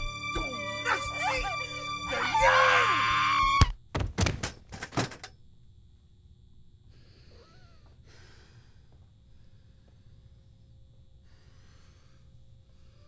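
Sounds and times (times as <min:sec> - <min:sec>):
heavy thumps: 0:03.8 - 0:04.8
faint breathing: 0:06.8 - 0:13.0.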